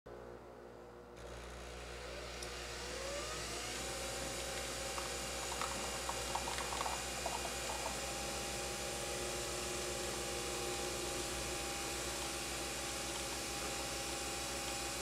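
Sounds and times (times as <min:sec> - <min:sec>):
coffee machine pump humming: 0:01.2 - 0:15.0
coffee streaming into mug: 0:04.1 - 0:08.8.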